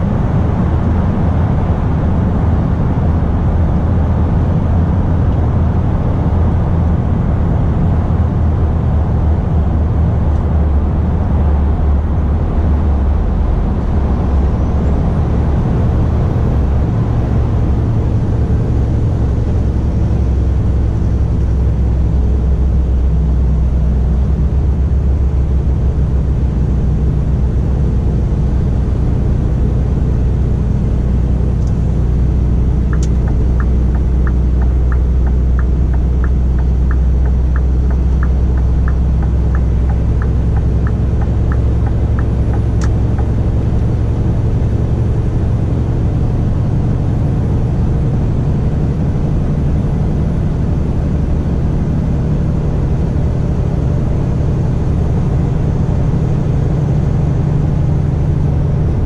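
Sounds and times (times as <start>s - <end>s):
diesel truck engine running: 0.0s - 59.0s
turn signal ticking: 31.5s - 45.3s.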